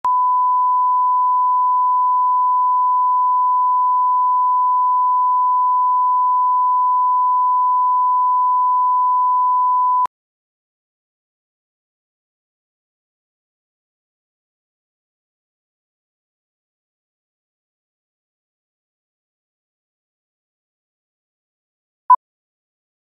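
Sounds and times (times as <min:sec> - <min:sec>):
steady test tone beep: 0:00.0 - 0:10.1.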